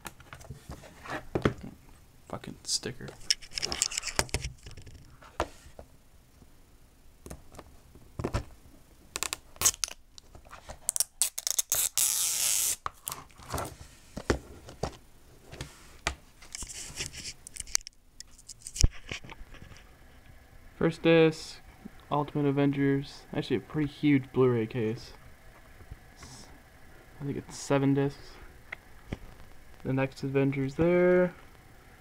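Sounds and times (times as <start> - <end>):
tearing sound: 9.2 - 10.0, 10.8 - 13.2.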